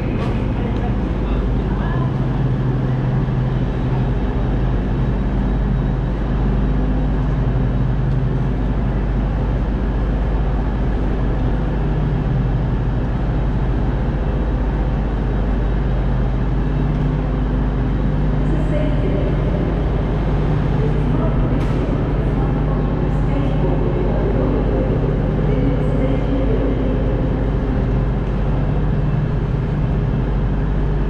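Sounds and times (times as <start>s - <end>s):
train humming while stationary: 0.0s - 31.0s
station noise: 17.6s - 29.8s.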